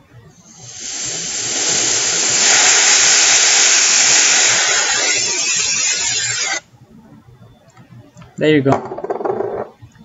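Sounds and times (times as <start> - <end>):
aerosol can spraying hiss: 0.5 - 6.6.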